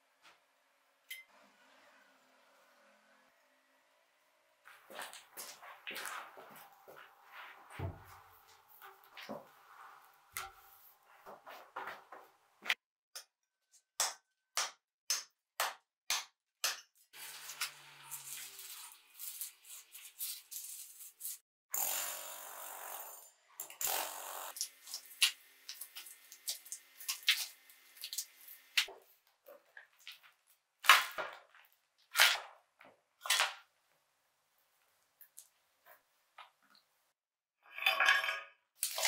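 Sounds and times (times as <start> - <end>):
power tool running: 21.8 - 24.7.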